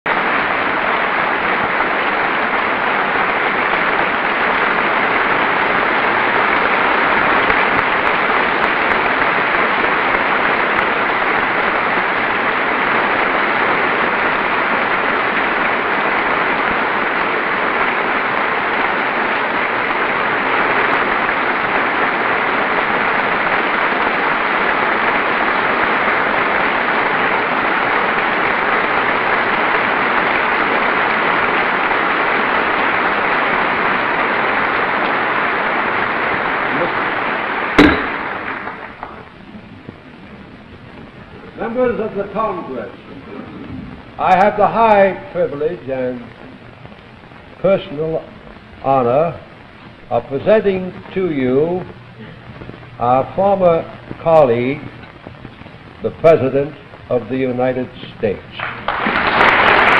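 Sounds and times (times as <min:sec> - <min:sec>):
large audience applauding: 0:00.1 - 0:39.3, 0:58.6 - 0:59.9.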